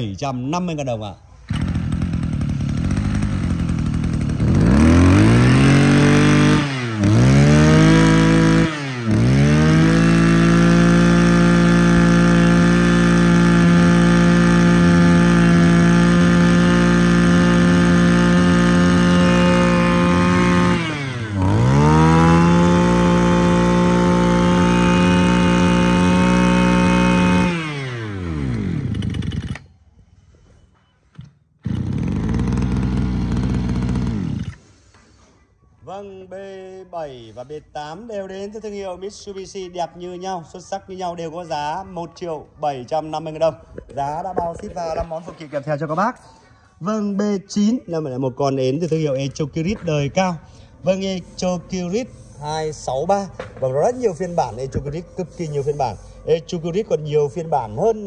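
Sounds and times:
brush cutter engine revving: 1.4 - 29.7, 31.6 - 34.7.

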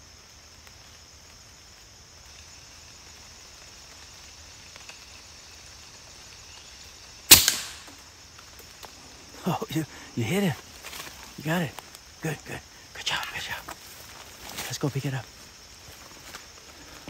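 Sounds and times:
air rifle shot: 7.3 - 7.9.

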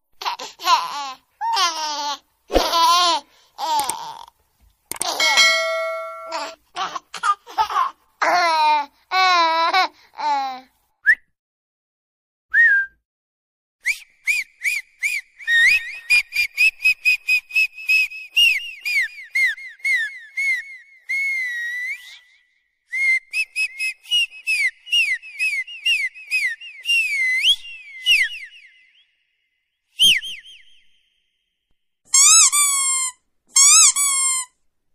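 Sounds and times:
high whistle-like chirps: 27.0 - 31.6.

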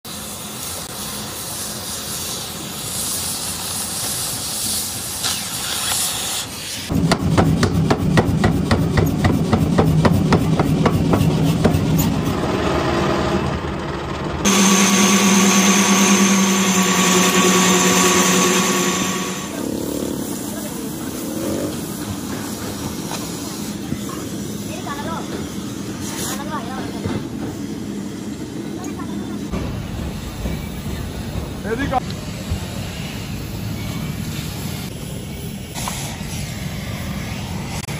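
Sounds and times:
cutting torch hissing: 0.1 - 6.9, 14.5 - 26.5, 32.0 - 37.9
lathe whining: 14.4 - 19.8
power hammer blows on steel: 14.5 - 19.6.

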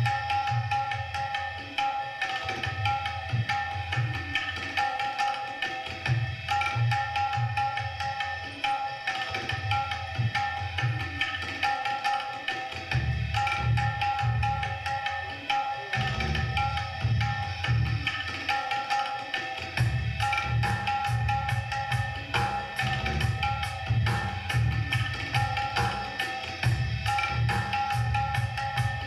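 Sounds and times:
steady held melody: 0.0 - 29.0
deep drum rhythm: 12.8 - 15.0, 16.0 - 18.4, 19.6 - 29.0.

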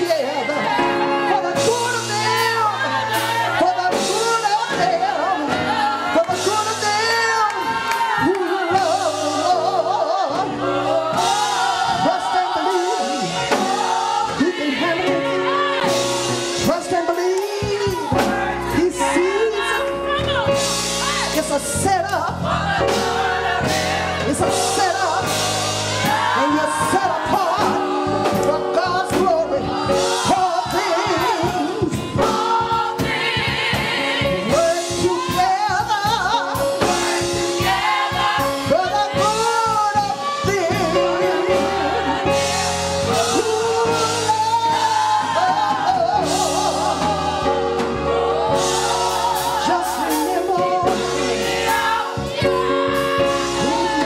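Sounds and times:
gospel choir singing: 0.0 - 54.0
keyboard: 0.0 - 54.0
woman singing into microphone: 26.0 - 33.2, 34.4 - 37.0.

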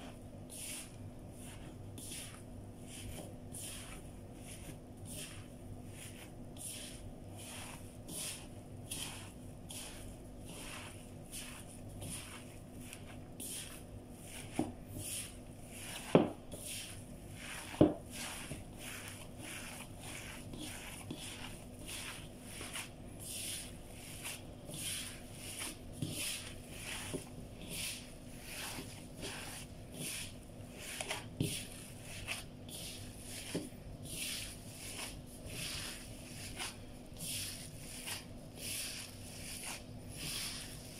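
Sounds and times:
hands kneading meat squishing: 0.0 - 40.9.

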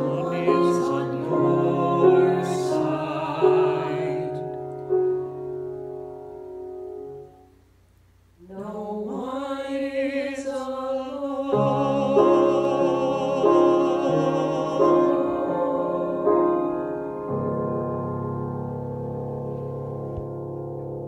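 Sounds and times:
vocal ensemble singing in harmony: 0.0 - 4.7, 8.4 - 17.4
piano chords: 0.0 - 7.6, 11.4 - 21.0.

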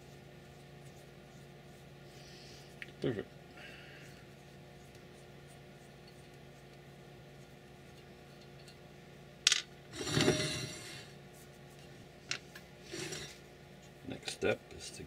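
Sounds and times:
faint steady hum: 0.0 - 15.0
metal heatsink scraping and rattling: 9.9 - 11.2, 12.8 - 13.4.

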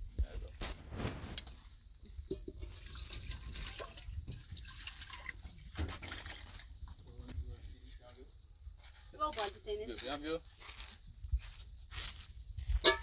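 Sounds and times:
water splashing and dripping: 2.0 - 7.0.

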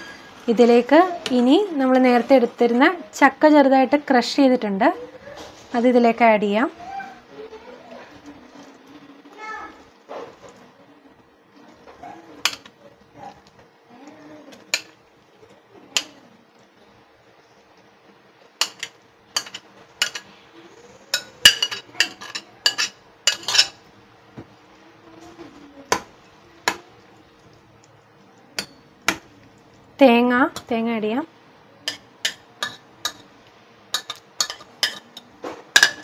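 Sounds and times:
spoon clinking against pot: 18.6 - 20.3, 21.1 - 23.8, 28.6 - 29.2, 31.8 - 33.3, 33.9 - 36.0.

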